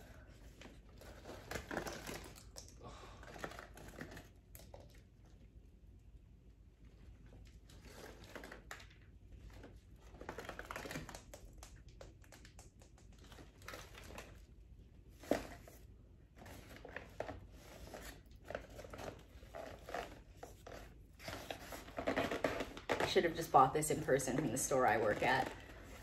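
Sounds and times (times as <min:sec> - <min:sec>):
paper wrapping rustling: 0:16.4 - 0:26.0.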